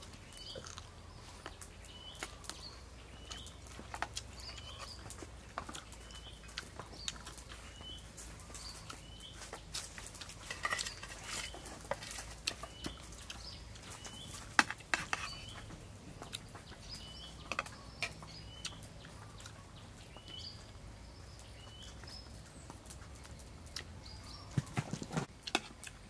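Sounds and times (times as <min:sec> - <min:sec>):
wet chewing clicks: 0:00.0 - 0:24.4
bird chirping: 0:00.0 - 0:25.5
spoon scraping metal plate: 0:14.9 - 0:15.5.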